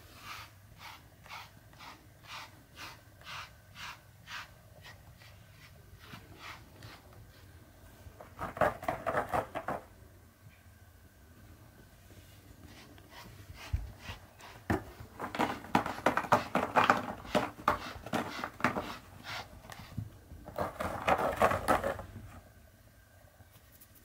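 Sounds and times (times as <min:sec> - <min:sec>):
brush stroking through fur: 0:00.0 - 0:07.6, 0:12.0 - 0:15.6.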